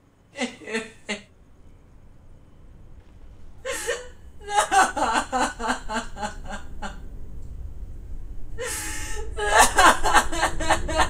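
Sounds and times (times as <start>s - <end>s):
woman sobbing: 0.4s - 1.2s, 3.6s - 7.0s, 8.6s - 11.0s.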